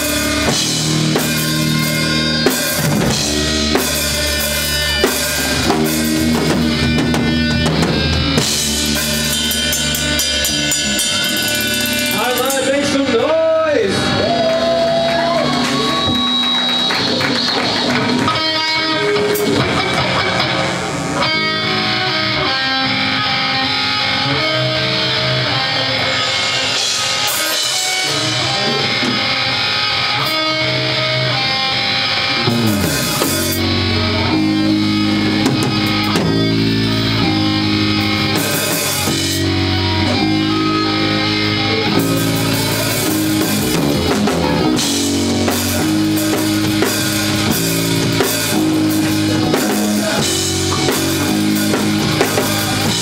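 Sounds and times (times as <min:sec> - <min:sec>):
drum kit and cymbals: 0:00.0 - 0:13.1, 0:26.0 - 0:30.6, 0:31.7 - 0:53.0
bass guitar: 0:00.0 - 0:53.0
electric guitar: 0:00.0 - 0:53.0.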